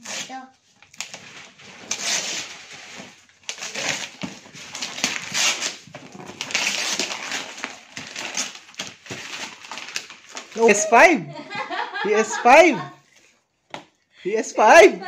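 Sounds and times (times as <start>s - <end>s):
wrapping paper tearing: 0.0s - 10.9s.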